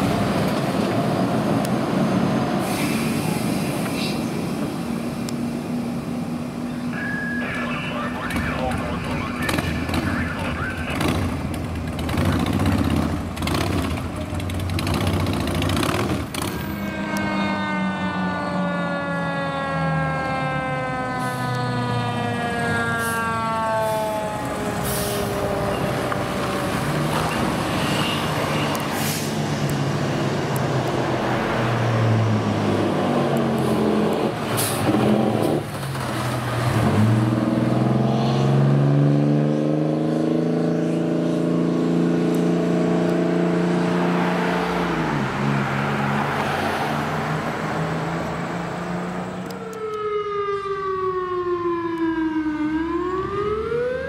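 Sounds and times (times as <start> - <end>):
diesel truck engine accelerating: 0.0 - 16.8, 17.6 - 53.9
short hisses: 2.6 - 4.3
siren falling in pitch: 16.6 - 26.7, 49.4 - 54.0.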